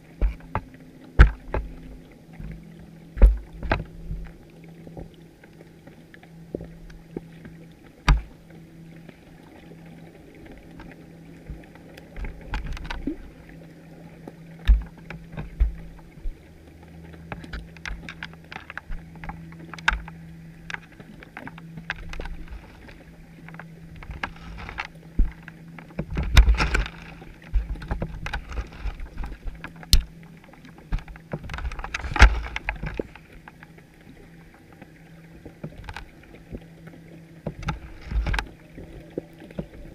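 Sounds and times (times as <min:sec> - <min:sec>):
steady low hum: 0:00.0 - 0:39.9
sharp underwater clicks and knocks: 0:00.1 - 0:08.6, 0:10.4 - 0:33.8, 0:34.8 - 0:39.9
muffled underwater thumps: 0:14.6 - 0:16.4.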